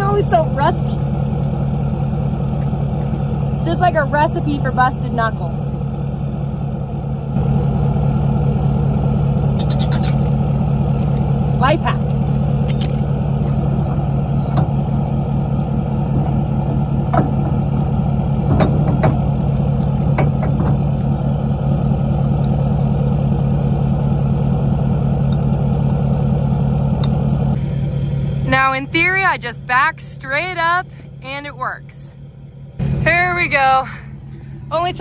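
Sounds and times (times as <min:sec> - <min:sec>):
pickup engine idling: 0:00.0 - 0:35.0
metallic hitch clicks and knocks: 0:09.6 - 0:11.3.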